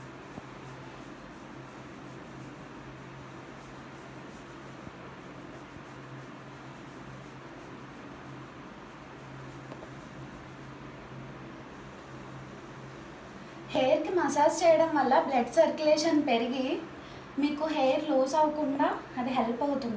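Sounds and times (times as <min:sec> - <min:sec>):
fingertips rubbing hair and scalp: 0:00.0 - 0:15.3
steady low hum: 0:00.0 - 0:19.9.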